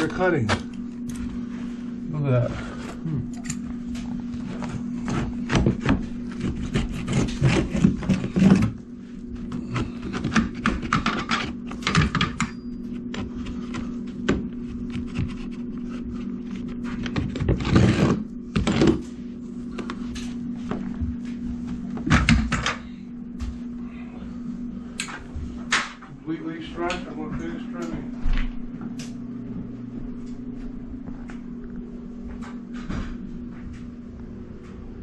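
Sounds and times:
steady low hum: 0.0s - 35.0s
blade cutting carpet: 5.2s - 8.8s.

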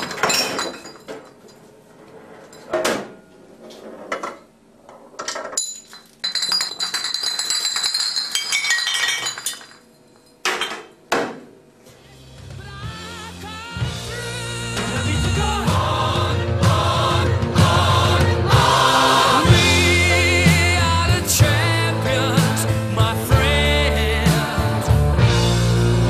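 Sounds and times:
glass bottles clinking: 0.0s - 1.6s, 5.2s - 11.0s
glass bottles toppling: 0.0s - 1.6s, 5.3s - 11.0s.

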